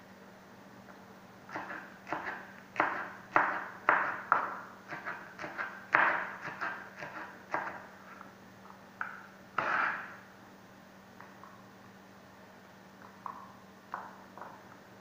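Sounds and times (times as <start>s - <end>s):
knife chopping on cutting board: 1.5s - 7.8s, 9.6s - 10.1s.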